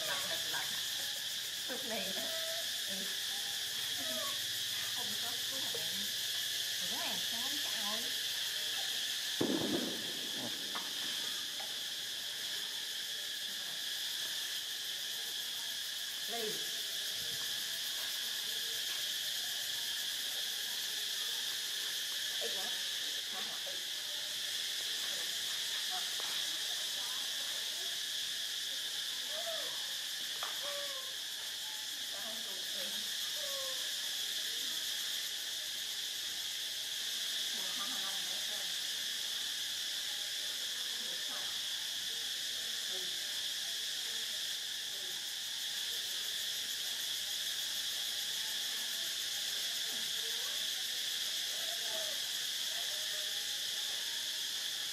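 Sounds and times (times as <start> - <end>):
insects droning: 0.0 - 54.9
faint squeaks and chirps: 30.4 - 31.5.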